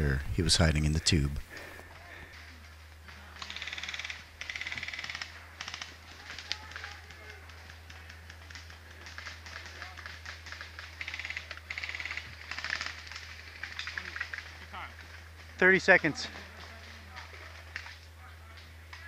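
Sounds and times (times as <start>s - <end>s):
airsoft rifles firing bursts: 3.1s - 18.1s.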